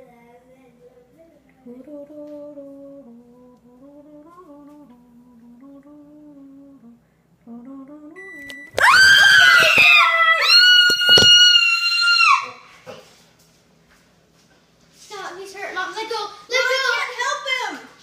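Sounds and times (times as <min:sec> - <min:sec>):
person humming softly: 0:01.6 - 0:08.3
loud high-pitched scream: 0:08.8 - 0:12.7.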